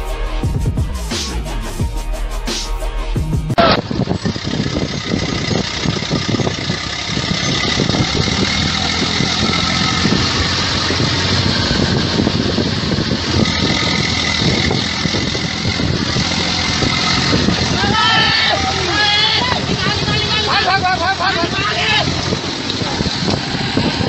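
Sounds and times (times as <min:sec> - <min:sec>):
tractor engine running under load: 0:03.6 - 0:24.0.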